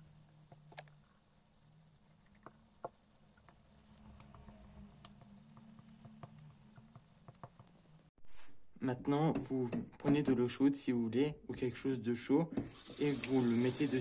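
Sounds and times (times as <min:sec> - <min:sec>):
sponge dabbing paper: 0:00.0 - 0:08.6.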